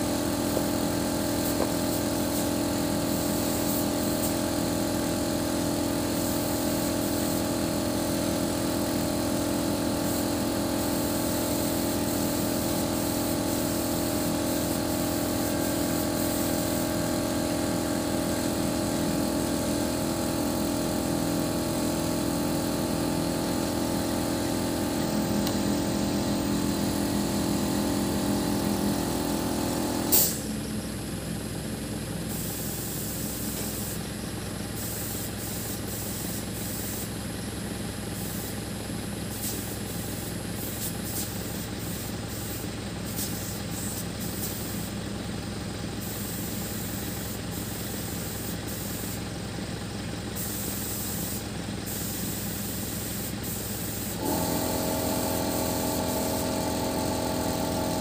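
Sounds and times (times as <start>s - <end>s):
boom lift engine humming: 16.5s - 32.6s.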